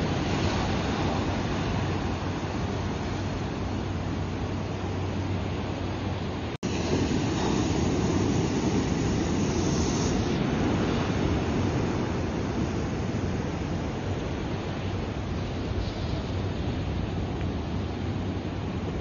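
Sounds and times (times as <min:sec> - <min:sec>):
ocean surf breaking: 0:00.0 - 0:19.0.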